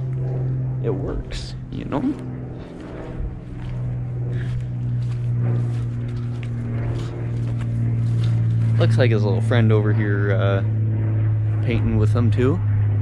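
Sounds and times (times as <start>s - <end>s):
engine droning: 0.0s - 13.0s.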